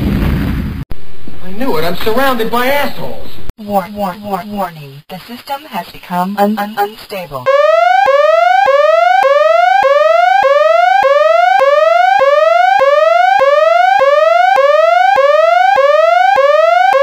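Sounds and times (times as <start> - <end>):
electronic alarm whooping: 7.5 - 17.0.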